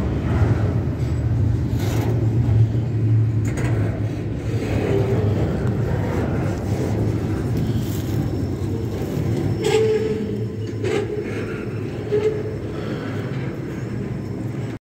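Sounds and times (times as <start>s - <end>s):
train wheels rumbling on rail: 0.0s - 14.8s
sharp clicks and squeals: 3.4s - 13.5s.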